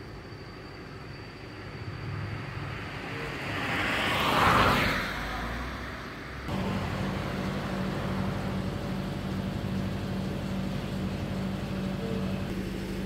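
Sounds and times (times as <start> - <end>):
road and wind noise: 0.0 - 13.0
vehicle engine humming: 6.4 - 13.0.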